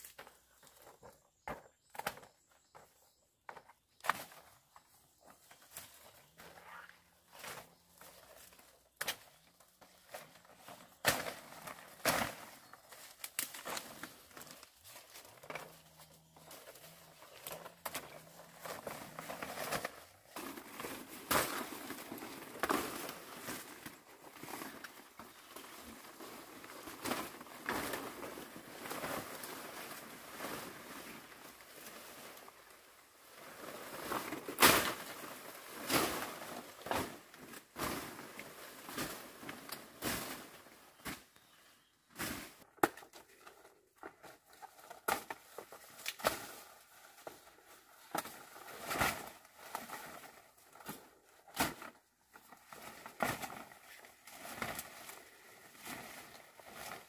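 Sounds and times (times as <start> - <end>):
brushing through undergrowth: 4.0 - 42.7, 44.1 - 57.0
leaves rustling and crackling: 4.0 - 57.0.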